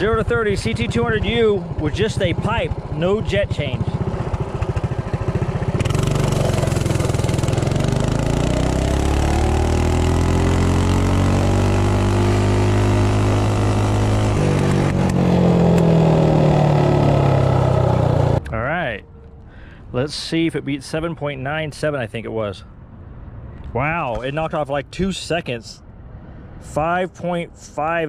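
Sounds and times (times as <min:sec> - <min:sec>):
minibike engine revving: 0:00.0 - 0:18.5.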